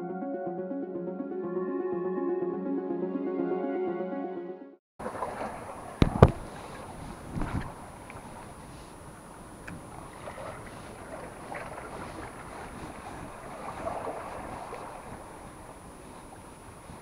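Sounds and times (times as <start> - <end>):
sea washing against rocks: 5.0 - 8.9, 9.8 - 17.0
wind on microphone: 5.5 - 17.0.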